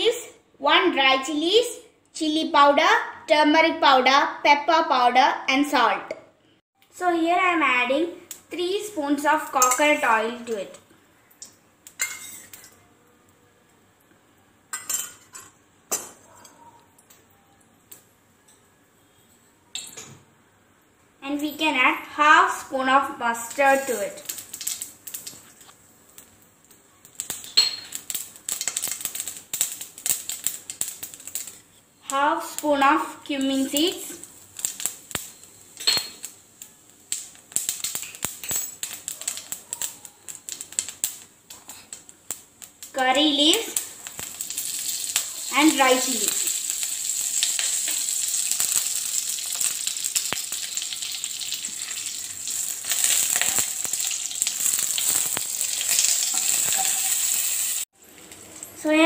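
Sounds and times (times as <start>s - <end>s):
faint room noise: 0.0s - 57.2s
seeds crackling in hot oil: 6.9s - 15.1s, 21.2s - 59.0s
metal utensils clinking: 12.0s - 12.8s, 55.0s - 57.4s.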